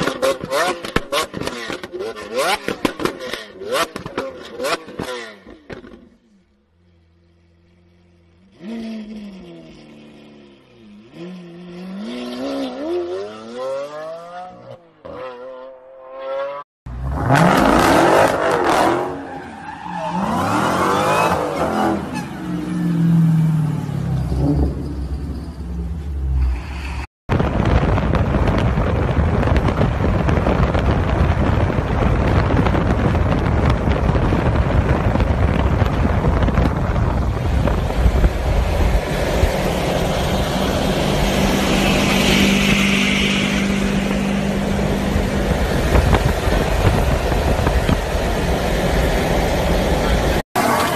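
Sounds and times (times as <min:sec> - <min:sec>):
car engines revving: 0:00.0 - 0:06.2, 0:07.1 - 0:27.1, 0:28.5 - 0:50.9
loud rush of noise: 0:26.7 - 0:50.9.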